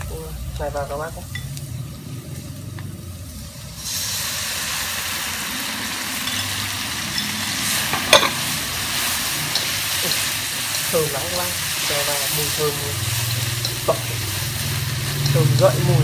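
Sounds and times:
sauce sizzling in hot wok: 0.0 - 16.0.

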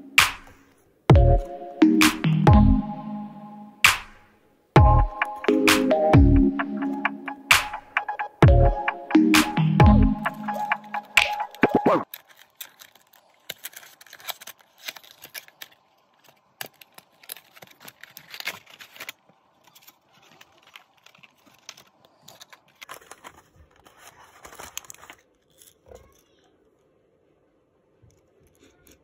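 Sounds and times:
packaging rustling and crinkling: 10.5 - 26.4.

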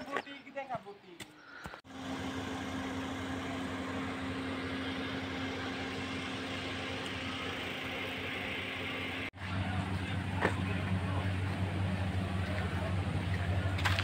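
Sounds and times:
motor humming: 1.9 - 14.0.

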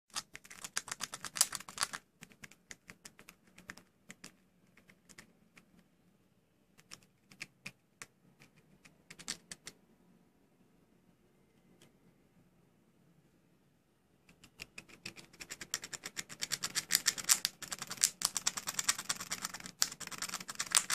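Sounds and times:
squirrel gnawing a nut: 0.1 - 5.8, 14.3 - 20.9.

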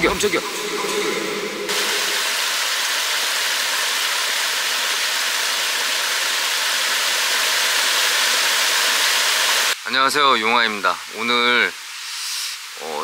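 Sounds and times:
stream splashing over rocks: 1.7 - 9.8.

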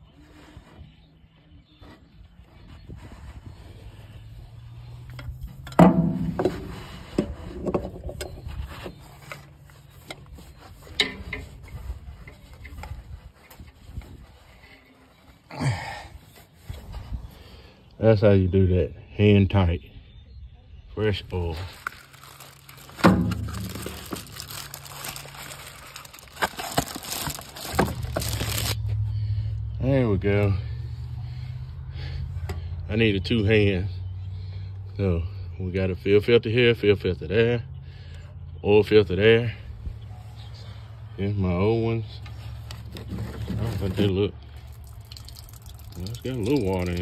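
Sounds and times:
low steady rumble: 20.6 - 35.6
packaging crinkling and rustling: 21.2 - 28.8, 42.6 - 47.0
filter rubbing and clicking: 21.8 - 28.8.

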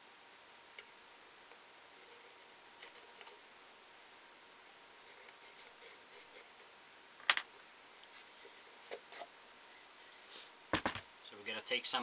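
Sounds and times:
knocks on wooden head: 10.7 - 11.0.

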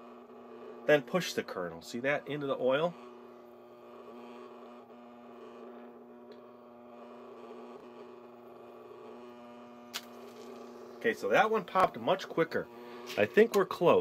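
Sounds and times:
popcorn popper motor hum: 0.0 - 14.0
kernel popping: 9.9 - 10.8.

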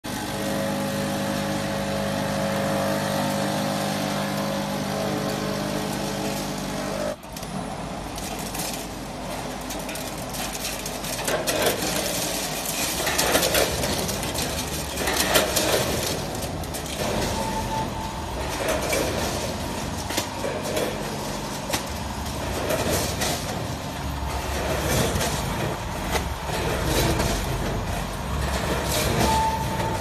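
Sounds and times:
snack pieces clattering through hoppers: 7.3 - 30.0
machine hum with held tones: 14.4 - 30.0.

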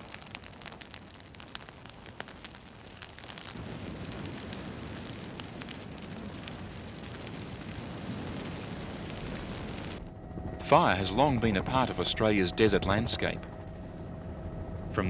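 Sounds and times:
grass fire burning and crackling: 0.0 - 15.0.

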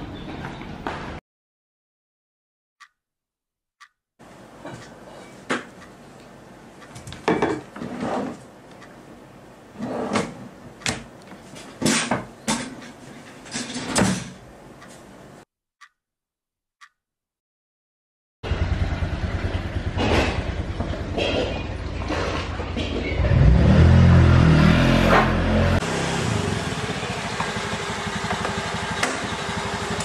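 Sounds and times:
drawers or cupboards banging: 13.4 - 14.4.

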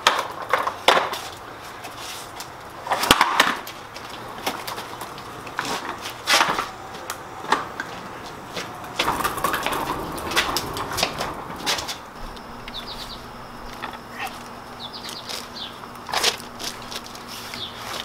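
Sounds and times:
wood knocking and scraping on concrete: 2.9 - 12.0.

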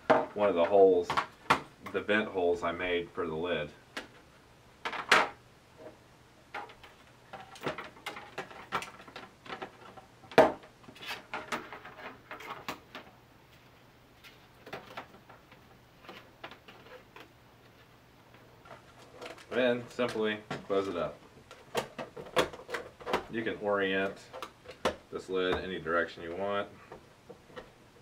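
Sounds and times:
cable handling clicks and taps: 24.0 - 25.7.

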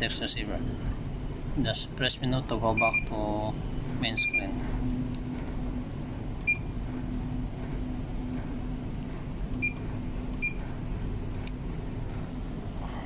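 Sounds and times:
low steady hum: 0.0 - 13.0
keypad beeps: 2.8 - 3.1, 4.2 - 4.5, 6.4 - 6.7, 9.6 - 10.6.

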